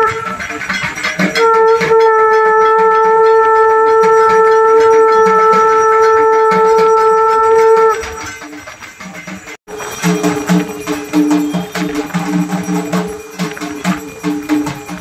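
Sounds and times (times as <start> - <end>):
conch shell blown: 0.0 - 8.7.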